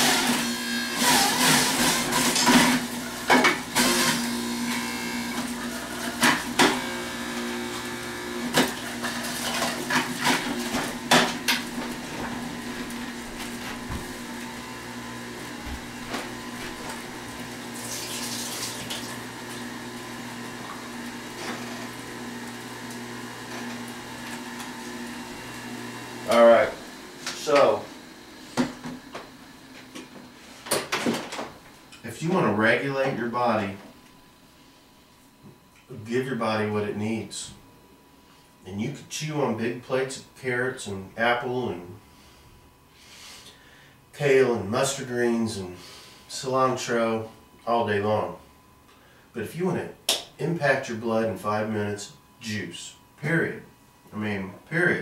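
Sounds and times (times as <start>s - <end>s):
juicer motor humming: 0.0s - 34.6s.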